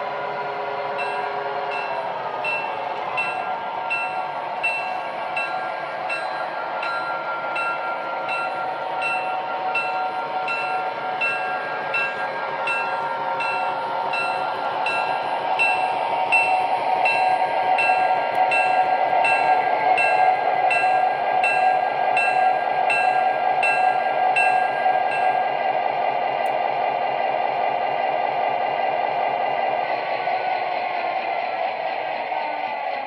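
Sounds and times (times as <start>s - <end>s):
diesel engine drone: 0.0s - 33.0s
model train wheel noise: 0.0s - 33.0s
bell ringing: 0.9s - 25.6s.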